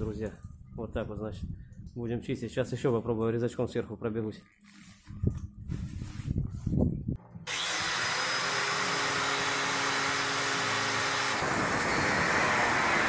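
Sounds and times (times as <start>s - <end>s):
angle grinder whining: 7.4s - 13.0s
grinder cutting steel: 7.5s - 13.0s.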